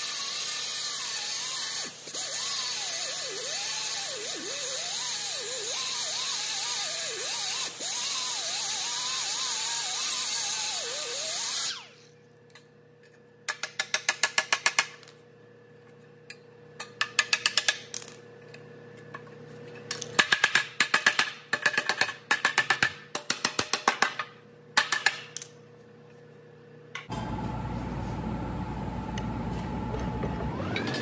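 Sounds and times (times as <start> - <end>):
loud power tool: 0.0 - 12.1, 29.8 - 31.0.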